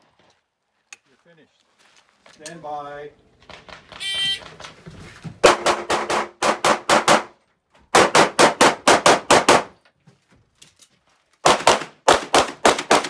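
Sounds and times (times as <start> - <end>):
rapid gunfire: 5.4 - 7.3, 8.0 - 9.7, 11.4 - 13.0.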